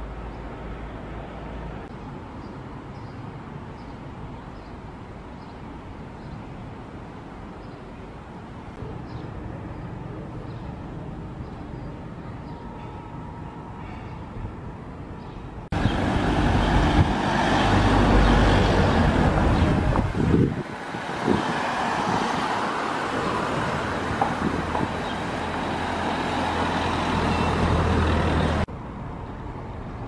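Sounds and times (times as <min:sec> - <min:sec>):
cars driving past: 0:15.7 - 0:28.7.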